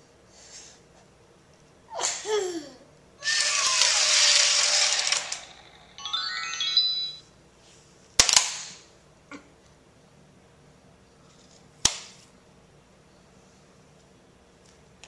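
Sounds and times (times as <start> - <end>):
falling electronic squeal: 3.2 - 7.2
descending electronic beeps: 5.9 - 7.3.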